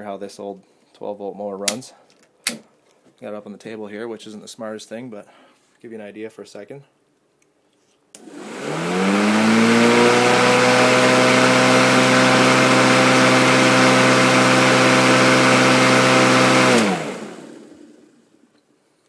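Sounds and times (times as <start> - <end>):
electric lawnmower motor whining: 8.2 - 18.2.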